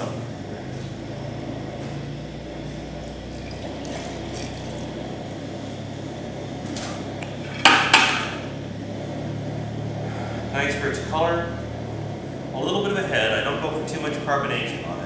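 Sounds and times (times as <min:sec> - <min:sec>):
beer pouring and sloshing: 0:03.0 - 0:05.8.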